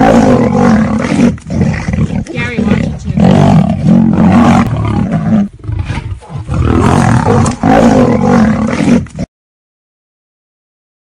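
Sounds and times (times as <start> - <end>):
big cat roaring: 0.0 - 9.3.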